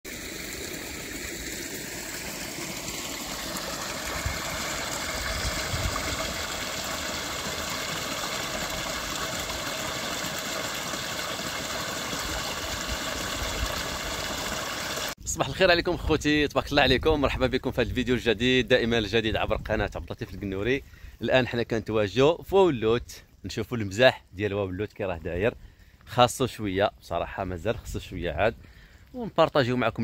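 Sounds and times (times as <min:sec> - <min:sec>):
flowing water rushing: 0:00.1 - 0:15.2.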